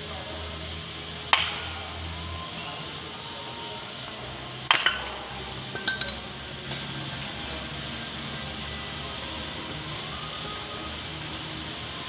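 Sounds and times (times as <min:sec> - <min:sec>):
metal parts clinking and knocking: 0:05.8 - 0:06.3.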